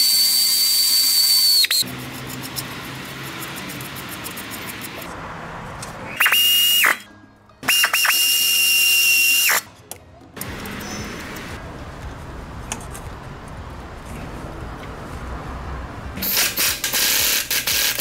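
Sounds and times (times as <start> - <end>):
power ratchet whining: 0.0 - 5.1, 16.2 - 18.0.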